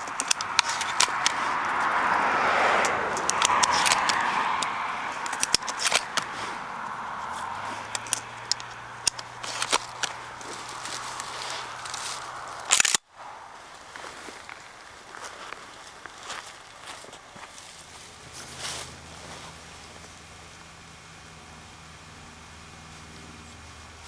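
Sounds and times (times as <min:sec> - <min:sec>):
rustling handling noise: 0:00.0 - 0:02.0, 0:02.7 - 0:13.0, 0:13.7 - 0:20.3
shotgun shells clicking into magazine: 0:03.2 - 0:04.2, 0:05.2 - 0:06.2, 0:07.9 - 0:10.2, 0:12.7 - 0:13.0.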